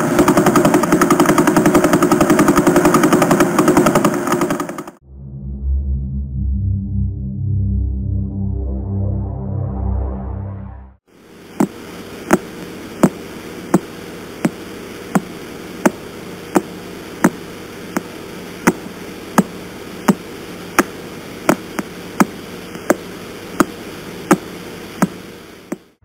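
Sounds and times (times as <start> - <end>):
radio static hiss: 11.1 - 26.0.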